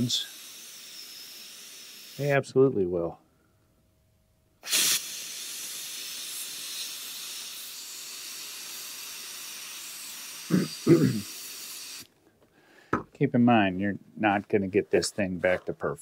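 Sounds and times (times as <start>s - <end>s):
garment steamer hissing: 0.0s - 2.4s, 4.6s - 12.1s.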